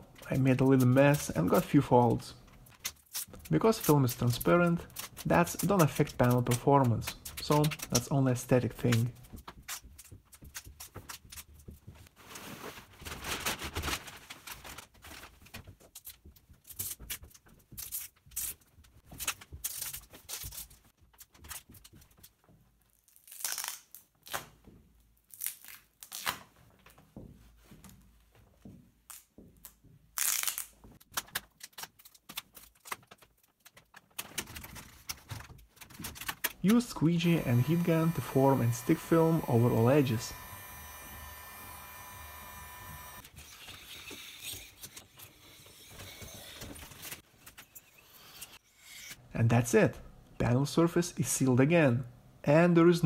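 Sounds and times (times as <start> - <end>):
plastic film crinkling: 0.2 - 22.3.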